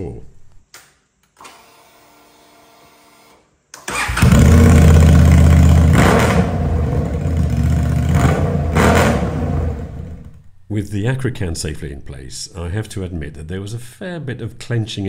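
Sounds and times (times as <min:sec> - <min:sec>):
motorcycle engine cranking: 0:03.8 - 0:06.4
loud straight-piped engine revving: 0:04.1 - 0:10.3.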